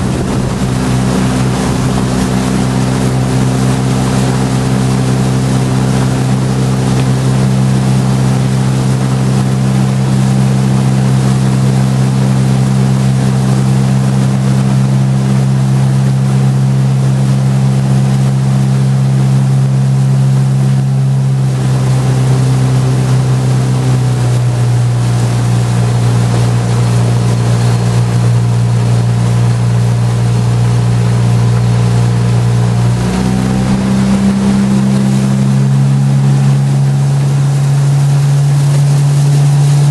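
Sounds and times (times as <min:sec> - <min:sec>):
wind noise: 0:00.0 - 0:16.0
boat engine running: 0:00.0 - 0:39.9
water noise: 0:00.0 - 0:39.9.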